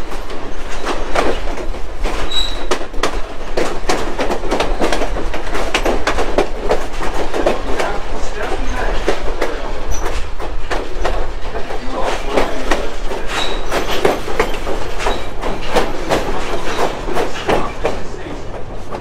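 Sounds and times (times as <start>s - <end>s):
train wheels clattering: 0.0s - 19.0s
high wheel squeal: 2.3s - 2.7s.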